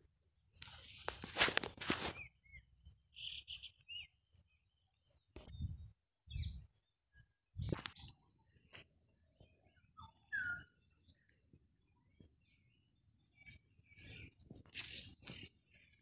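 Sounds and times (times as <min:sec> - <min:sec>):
short bird chirps: 0:09.8 - 0:11.2.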